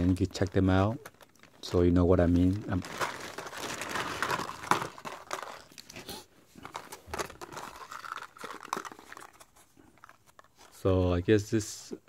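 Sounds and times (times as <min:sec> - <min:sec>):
plastic bag crinkling: 0:00.0 - 0:10.8
plastic blister packs clicking: 0:02.7 - 0:06.0.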